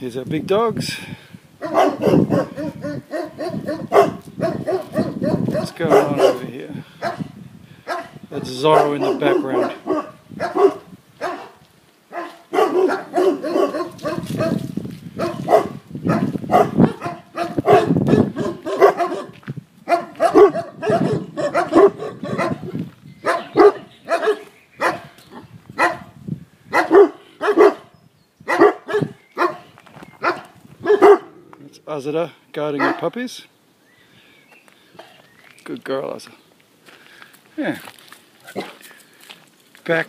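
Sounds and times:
large dog barking: 1.6 - 31.6, 32.8 - 33.2.

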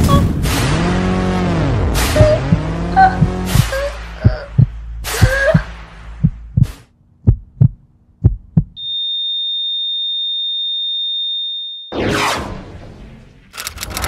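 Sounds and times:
low drone: 0.0 - 6.6
heartbeat thumps: 2.1 - 8.8
high-pitched flatline beep: 8.8 - 12.1.

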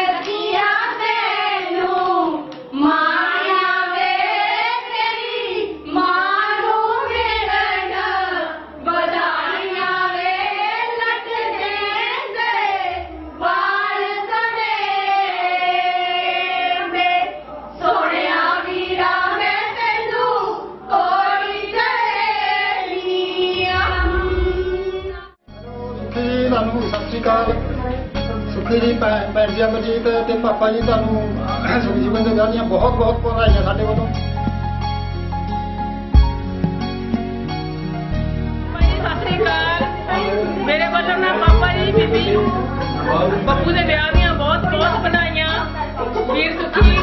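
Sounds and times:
women singing in unison: 0.0 - 25.4.

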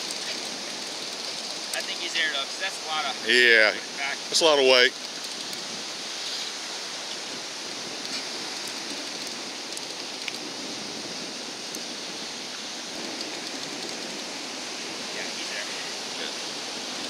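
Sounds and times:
ocean surf rushing: 0.0 - 17.0.

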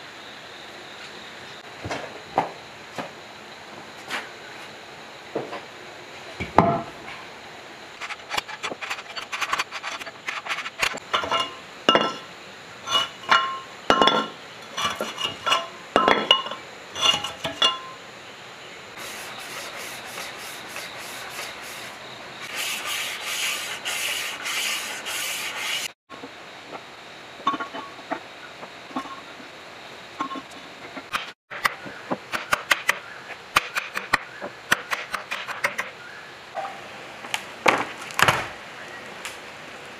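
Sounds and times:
scraping strokes on metal: 8.0 - 12.3, 12.9 - 15.8, 17.0 - 17.9, 19.0 - 26.0
metal liners knocking and clinking: 11.1 - 12.2, 12.9 - 17.9.

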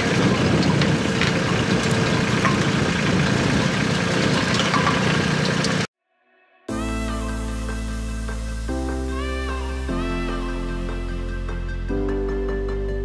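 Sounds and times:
planter mechanism clicks and rattles: 0.0 - 5.9
tractor engine running: 0.0 - 5.9.

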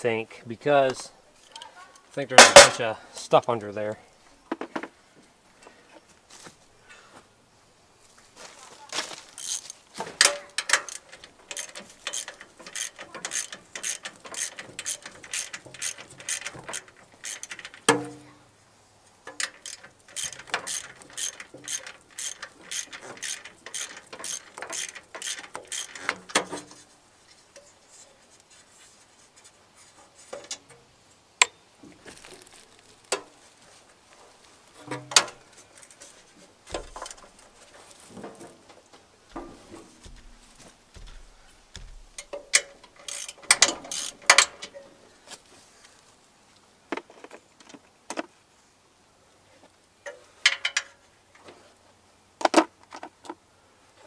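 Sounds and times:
socket ratchet clicking: 10.2 - 17.9, 19.3 - 26.4, 42.1 - 44.7.

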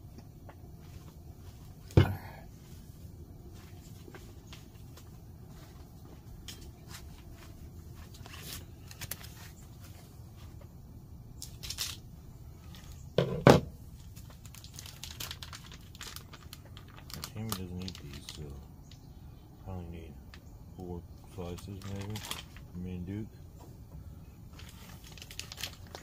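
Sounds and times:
plastic packaging crinkling: 7.9 - 10.0, 11.4 - 13.0, 13.9 - 19.0, 21.5 - 22.8, 24.5 - 26.0.

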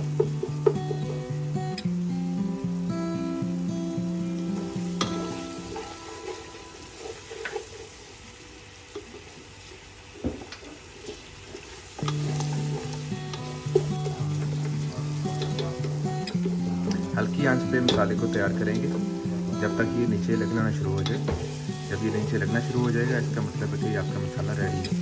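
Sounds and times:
background music: 0.0 - 7.0, 12.0 - 25.0
onions sizzling in oil: 0.0 - 25.0.

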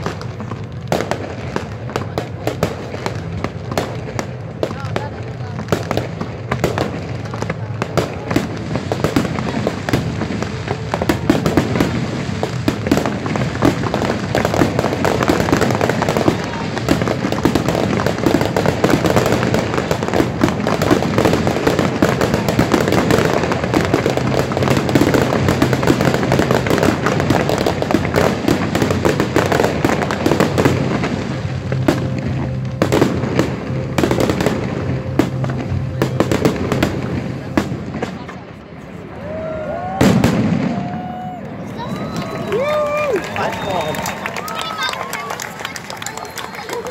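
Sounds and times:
fireworks bursting and crackling: 0.0 - 46.9
music playing: 28.8 - 38.0.

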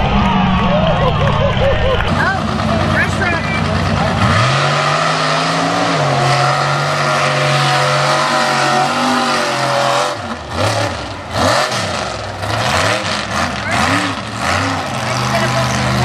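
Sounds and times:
truck engine revving: 0.0 - 16.0.

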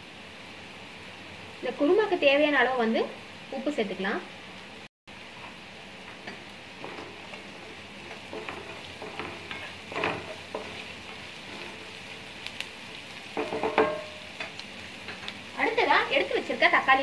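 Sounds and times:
onions sizzling in oil: 0.0 - 17.0
spatula scraping pan: 6.3 - 12.1.

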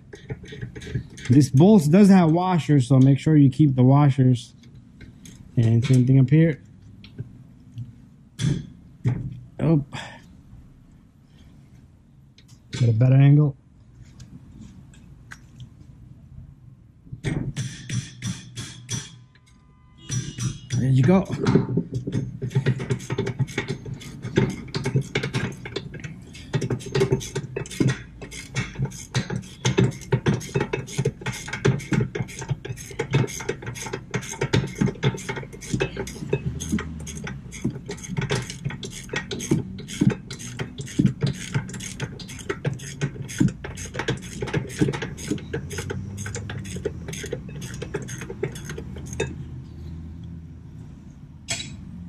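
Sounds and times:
hand ratchet clicking: 20.1 - 49.4.

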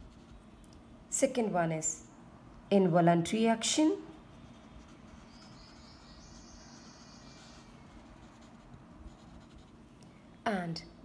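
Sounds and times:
marker squeaking on whiteboard: 4.4 - 6.4, 7.3 - 9.7.

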